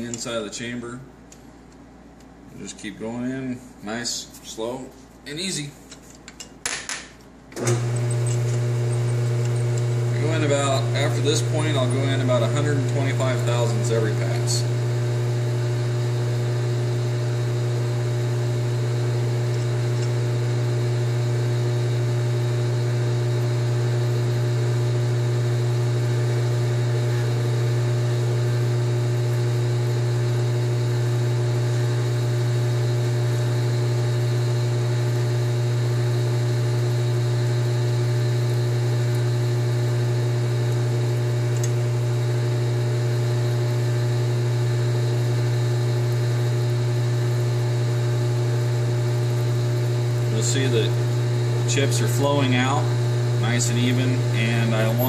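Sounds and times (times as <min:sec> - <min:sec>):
metal lathe humming: 0:07.6 - 0:55.0
reamer cutting steel: 0:07.7 - 0:14.8, 0:48.9 - 0:55.0.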